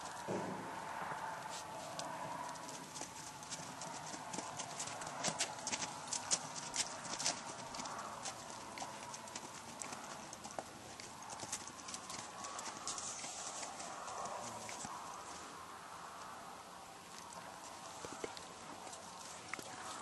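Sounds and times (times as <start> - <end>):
hoofbeats on frozen snow: 0.0 - 15.0.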